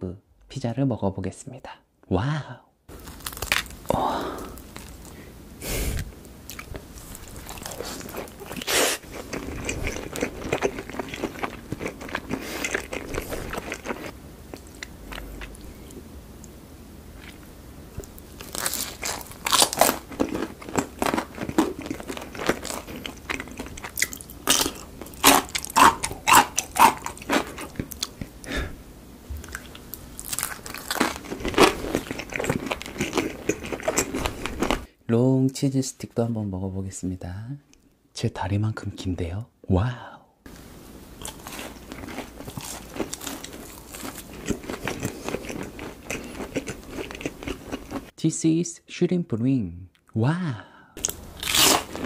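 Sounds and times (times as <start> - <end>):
crisp crunching bites: 2.9 - 5.2, 18.4 - 28.1, 29.5 - 34.9, 51.0 - 52.0
wet chewing: 6.4 - 16.0, 18.0 - 28.3, 29.4 - 34.9, 41.2 - 48.1.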